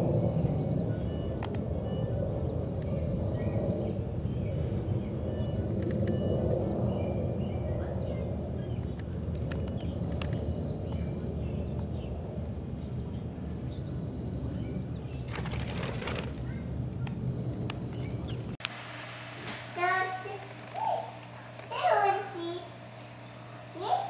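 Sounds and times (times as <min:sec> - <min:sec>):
low background rumble: 0:00.0 - 0:24.0.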